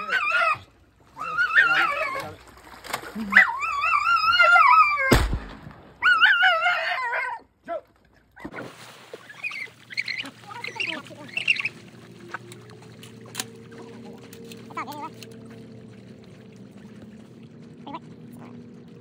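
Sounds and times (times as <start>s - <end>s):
dog whining: 0.0s - 2.3s, 3.2s - 5.1s
water splashing from swimming dog: 0.0s - 5.1s, 6.0s - 19.0s.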